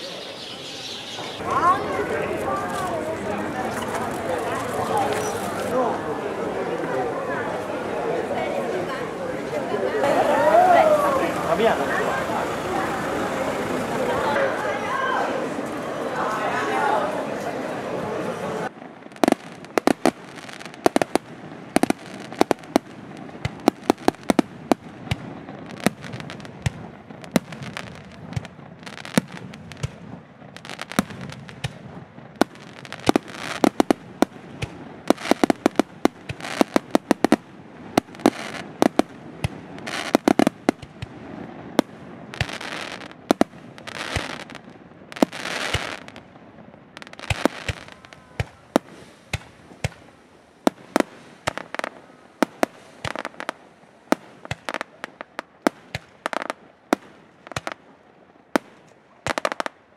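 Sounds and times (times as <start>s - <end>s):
fireworks hissing bursts: 0.0s - 7.2s, 9.7s - 15.6s, 18.1s - 46.2s, 46.9s - 57.8s
fireworks bangs: 0.0s - 59.9s.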